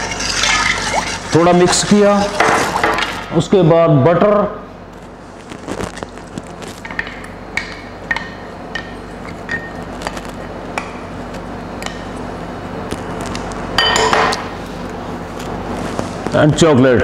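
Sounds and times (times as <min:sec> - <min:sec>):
utensils clinking against pot: 0:13.8 - 0:14.4.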